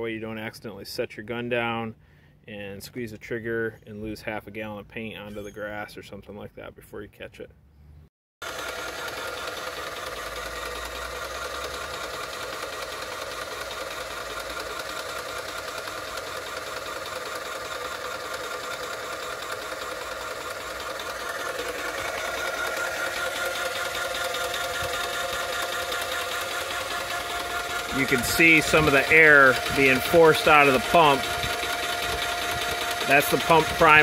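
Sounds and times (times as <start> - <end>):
paint sprayer pump running: 8.4 - 34.0.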